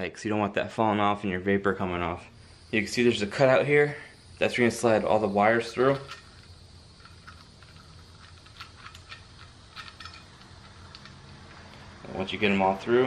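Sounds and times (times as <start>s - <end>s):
low steady hum: 0.0s - 13.0s
wires and connectors rattling: 5.7s - 11.8s.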